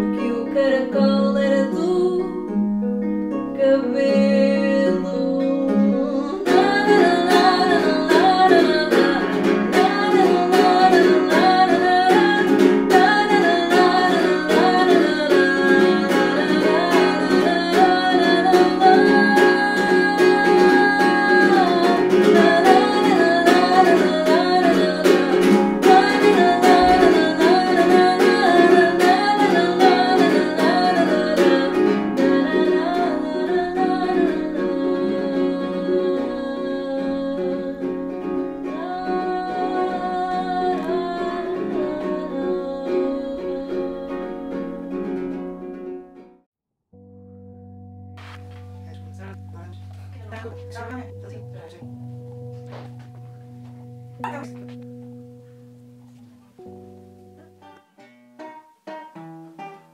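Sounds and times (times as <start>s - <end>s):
person singing wordless melody: 0.0s - 2.6s, 3.4s - 45.5s, 54.2s - 54.7s
small acoustic guitar plucked: 0.0s - 46.4s, 47.0s - 59.9s.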